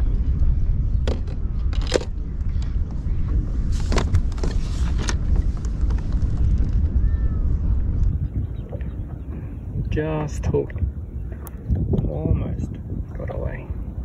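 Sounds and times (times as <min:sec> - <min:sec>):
wind rumble on microphone: 0:00.0 - 0:14.0
gear clicks and knocks: 0:01.0 - 0:02.7.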